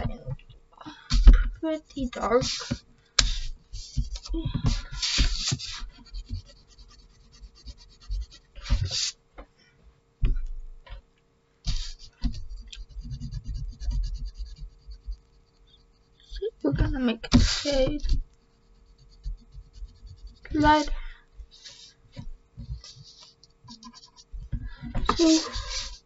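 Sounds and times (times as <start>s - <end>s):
faint steady hum: 0.0s - 26.0s
pencil scratching on paper: 2.2s - 9.2s, 11.7s - 16.4s, 17.3s - 22.0s, 22.7s - 24.4s, 25.1s - 26.0s.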